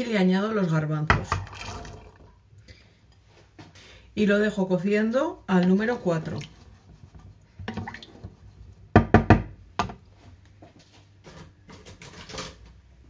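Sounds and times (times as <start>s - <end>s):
wooden spoon knocking against pan: 8.9s - 10.0s.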